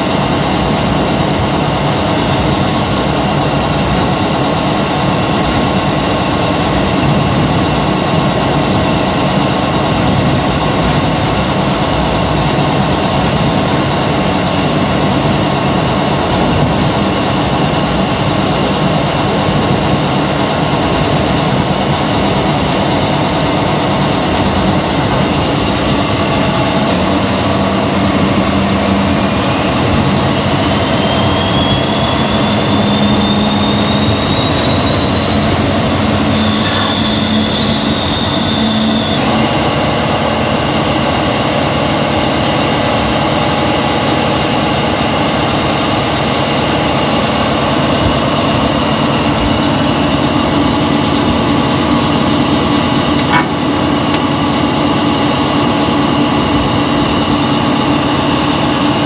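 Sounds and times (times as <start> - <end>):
diesel locomotive engine running: 0.0 - 59.0
turbocharger whistle: 28.9 - 39.7.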